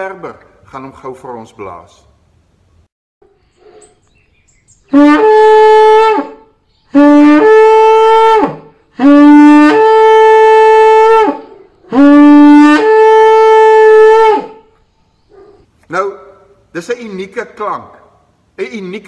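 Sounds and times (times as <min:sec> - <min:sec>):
shofar blasts: 0:04.9 - 0:14.7.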